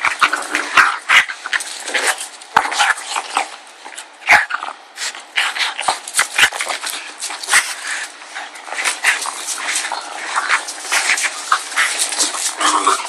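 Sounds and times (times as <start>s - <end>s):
dog growling: 7.8s - 13.0s.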